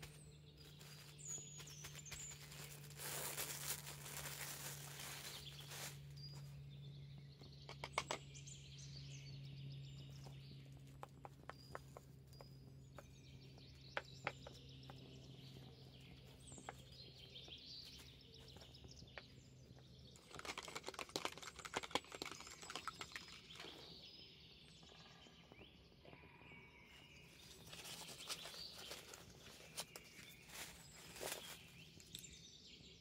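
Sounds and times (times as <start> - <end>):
plastic wrapping crinkling: 0.6 - 6.1, 20.2 - 23.1
faint bird chirps: 22.2 - 33.0.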